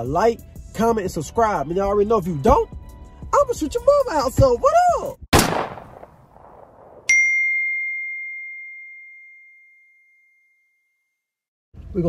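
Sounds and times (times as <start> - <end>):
notification chime ding: 7.1 - 10.4.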